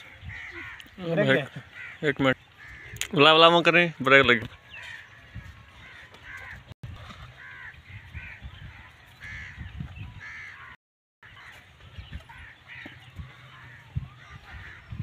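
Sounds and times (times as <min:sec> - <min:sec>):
crows cawing: 0:00.2 - 0:03.0, 0:04.7 - 0:06.7, 0:07.4 - 0:08.4, 0:10.2 - 0:11.6.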